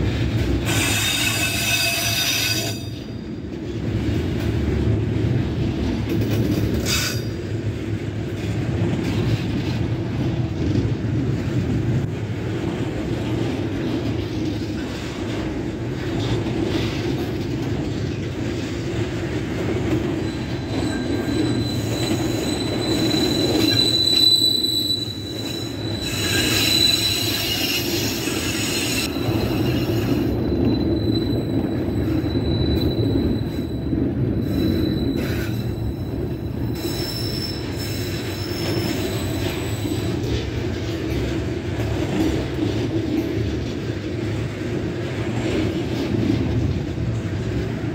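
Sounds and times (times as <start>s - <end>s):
steel wheels rumbling on rails: 0.0s - 47.9s
high steady squeal: 20.2s - 40.2s.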